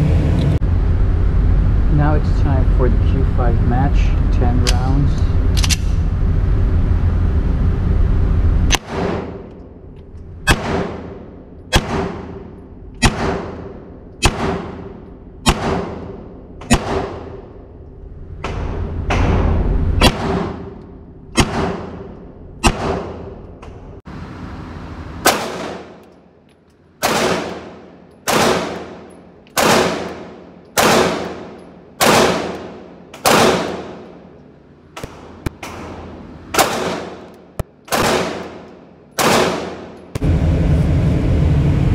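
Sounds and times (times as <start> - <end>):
pistol shots echoing indoors: 10.4 - 17.7, 18.5 - 23.5, 25.2 - 26.4, 27.0 - 40.2.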